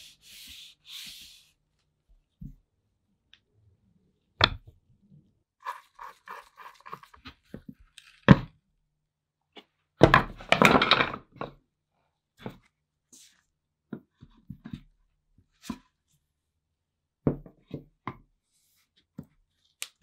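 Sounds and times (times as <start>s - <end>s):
wooden parts clattering: 10.0s - 11.6s.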